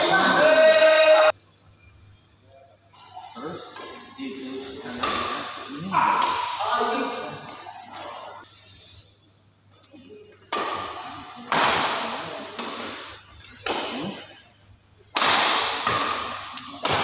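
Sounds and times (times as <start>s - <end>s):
racket hitting shuttlecock: 4.9s - 6.6s, 10.5s - 14.1s, 15.1s - 17.0s.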